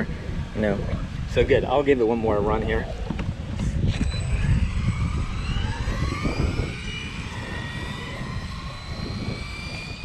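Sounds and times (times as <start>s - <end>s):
electric motor whining: 2.4s - 10.0s.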